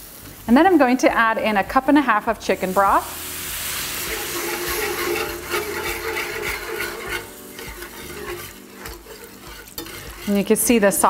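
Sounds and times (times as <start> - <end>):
liquid sizzling in a hot pan: 0.0 - 11.0
whisk scraping and stirring sauce: 3.9 - 11.0.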